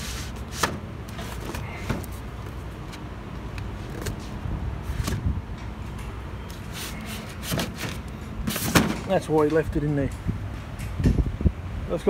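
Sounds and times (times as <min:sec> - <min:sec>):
steady low rumble: 0:00.9 - 0:06.4, 0:09.6 - 0:12.0.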